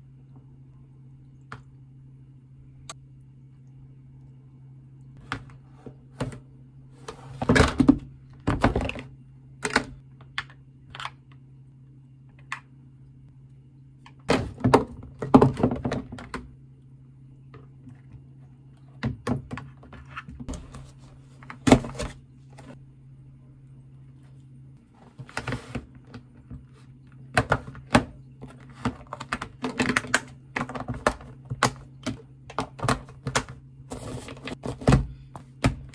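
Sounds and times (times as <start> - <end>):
steady low hum: 0.0 - 35.9
plastic containers clicking and knocking: 14.1 - 16.5, 27.3 - 33.6.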